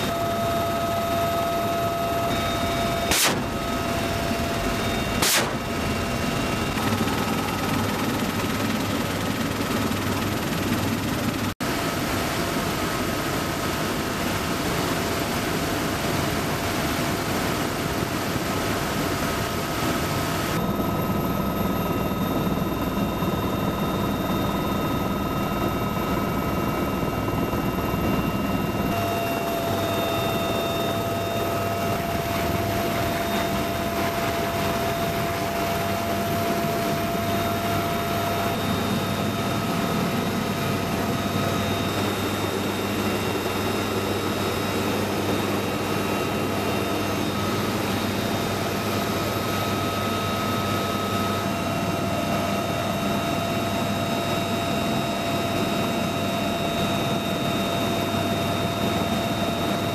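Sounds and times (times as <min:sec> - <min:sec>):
helicopter rotor and turbine: 0:00.0 - 0:59.9
sharp crack: 0:03.1 - 0:03.6, 0:05.2 - 0:05.6.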